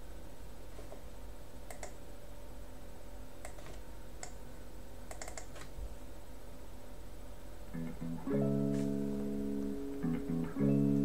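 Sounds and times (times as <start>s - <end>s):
steady low hum: 0.0s - 11.0s
computer mouse clicks: 1.7s - 2.0s, 3.4s - 4.4s, 5.1s - 5.8s.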